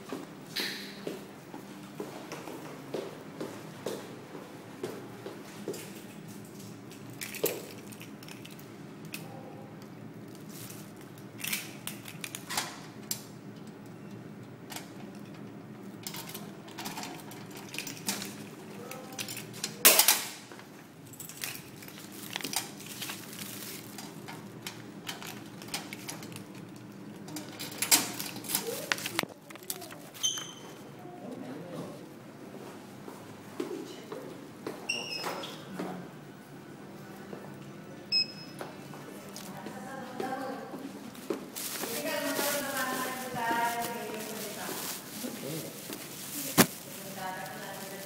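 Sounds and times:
paper mail rustling: 21.7 - 24.0, 28.4 - 30.2, 41.6 - 48.0.

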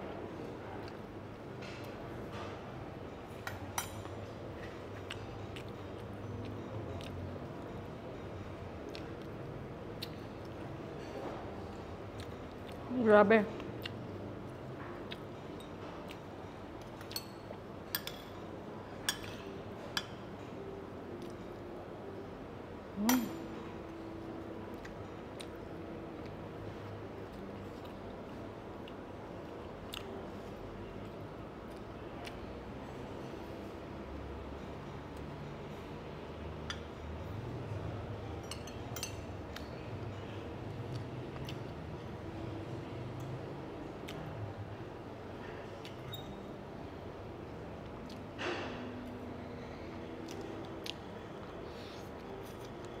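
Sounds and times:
low background hum: 0.0 - 53.0
cutlery clinking against plates: 15.3 - 20.6, 23.0 - 23.6, 38.4 - 40.4.

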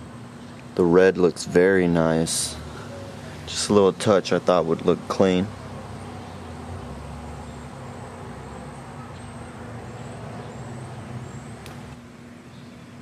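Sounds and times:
light click: 11.6 - 11.8.

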